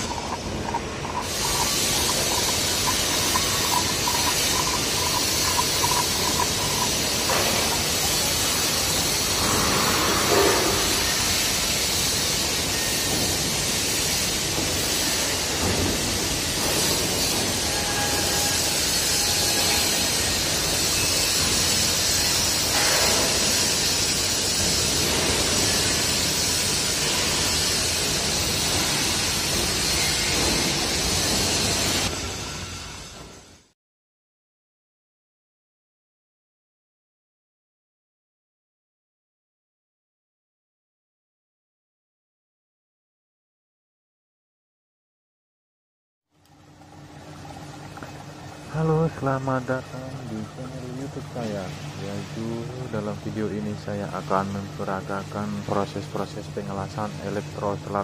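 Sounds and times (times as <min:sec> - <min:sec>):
welding hiss: 0:00.0 - 0:33.6
industrial background noise: 0:00.0 - 0:33.7, 0:47.3 - 0:58.0.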